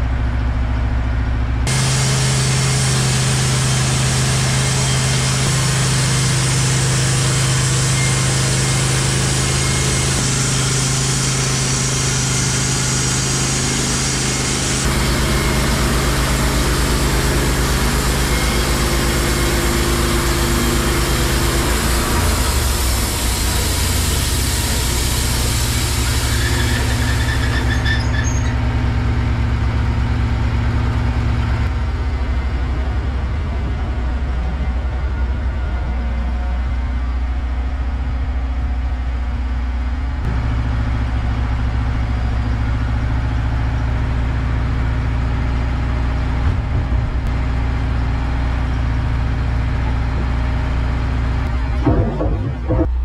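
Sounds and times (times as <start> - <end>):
sawmill gas engine running: 0.0 - 53.0
band blade cutting log hiss: 1.7 - 14.9.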